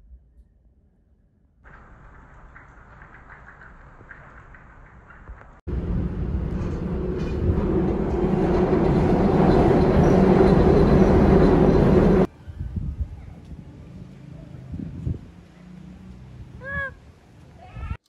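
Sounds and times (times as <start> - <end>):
elevated train rumbling overhead: 5.7 - 12.4.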